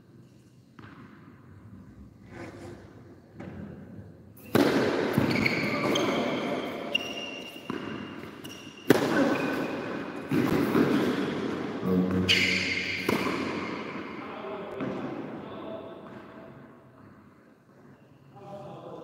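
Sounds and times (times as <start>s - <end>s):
racket hitting tennis ball: 4.5s - 5.4s, 11.8s - 14.0s
shoe squeaks: 5.2s - 9.8s, 12.1s - 13.1s.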